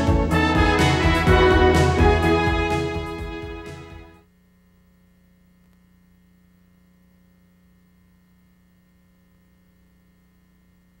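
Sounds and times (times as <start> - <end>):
faint electrical hum: 4.2 - 11.0.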